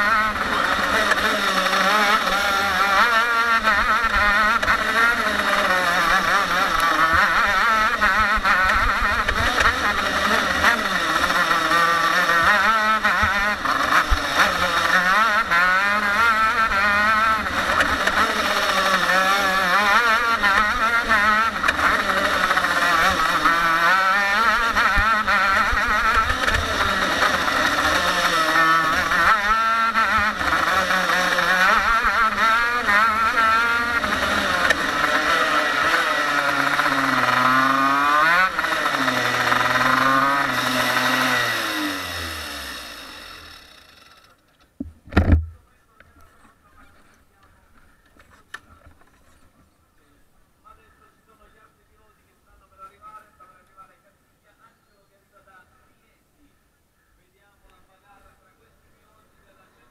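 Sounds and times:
kart engine revving: 0:00.0 - 0:44.5.

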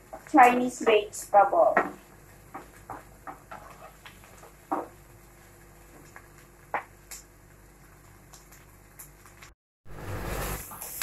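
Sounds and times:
wooden spatula scraping metal pot: 0:03.5 - 0:04.0.

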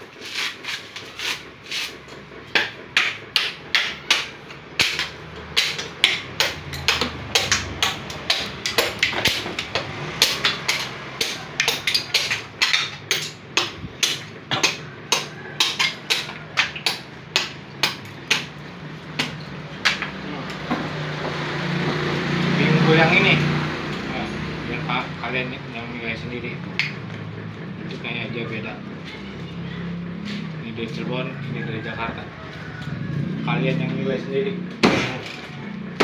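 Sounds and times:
hand axe chopping coconut shell: 0:00.0 - 0:20.2, 0:34.8 - 0:36.0.

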